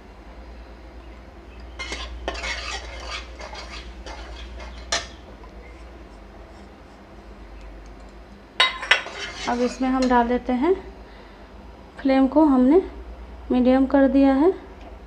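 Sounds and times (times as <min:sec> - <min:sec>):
metal spatula scraping a pan: 0:01.7 - 0:06.8, 0:08.6 - 0:10.3.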